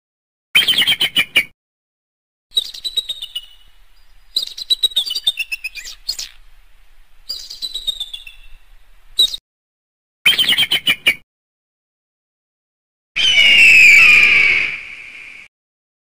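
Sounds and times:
eagle piping calls: 2.6 - 6.5, 7.2 - 8.6.

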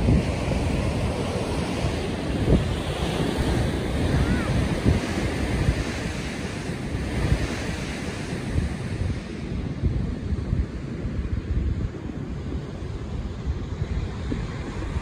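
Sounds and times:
ocean surf washing: 0.0 - 15.0
wind buffeting microphone: 0.0 - 15.0.

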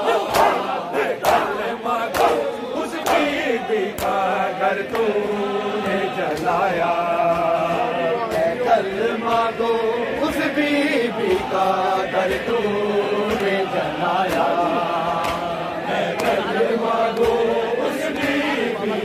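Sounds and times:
men chanting a lament: 0.0 - 19.0
chest-beating slaps: 0.1 - 9.7, 14.2 - 14.6, 15.2 - 15.6, 16.2 - 16.5, 17.1 - 18.5.

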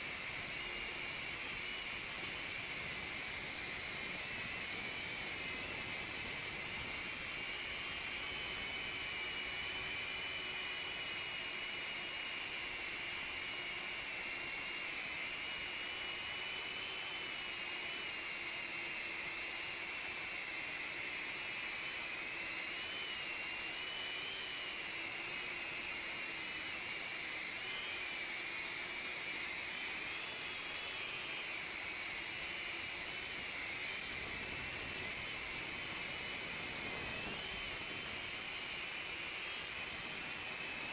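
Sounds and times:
drone propellers whining: 29.2 - 40.9.

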